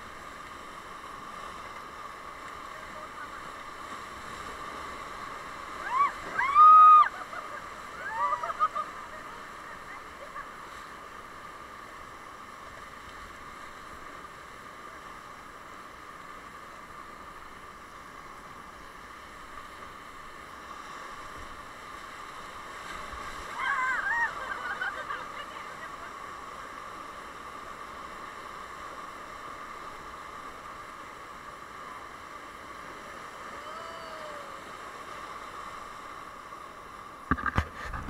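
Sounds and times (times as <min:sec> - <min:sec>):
river rapids rushing: 0:20.2 - 0:28.1, 0:32.7 - 0:36.9
person calling out: 0:33.6 - 0:34.6.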